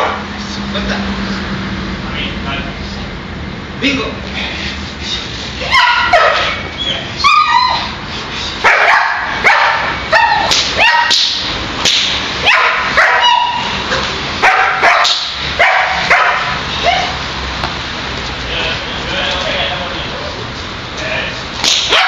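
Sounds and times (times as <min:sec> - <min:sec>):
dog barking: 0:00.0 - 0:00.2, 0:05.7 - 0:06.6, 0:08.6 - 0:11.2, 0:12.4 - 0:17.2.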